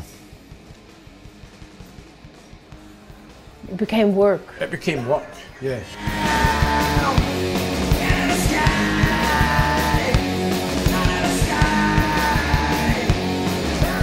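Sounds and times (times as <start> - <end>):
loud rock music: 0.0 - 14.0
person singing: 6.0 - 14.0.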